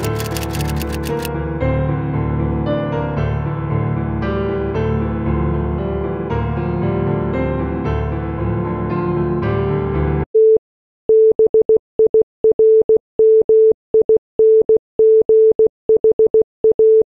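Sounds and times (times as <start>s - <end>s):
piano music: 0.0s - 10.2s.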